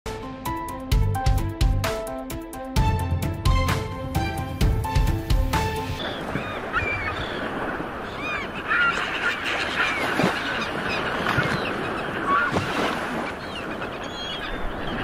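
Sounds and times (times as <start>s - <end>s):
surf washing: 4.1s - 15.0s.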